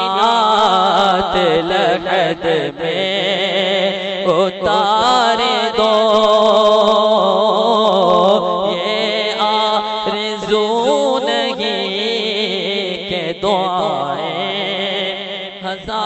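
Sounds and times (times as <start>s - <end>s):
man chanting: 0.0s - 16.0s.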